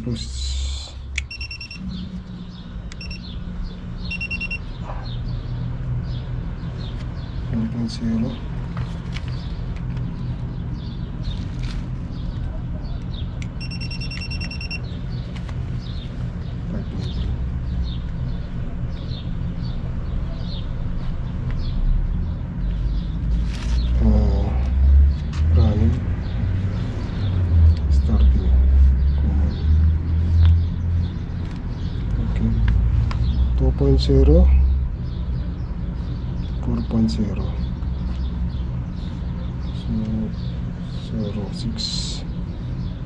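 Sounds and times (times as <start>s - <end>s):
small bird chirping: 0.0s - 8.5s, 9.2s - 33.5s
short high electronic beeps: 1.2s - 2.0s, 3.0s - 3.2s, 4.1s - 4.7s, 13.6s - 14.8s.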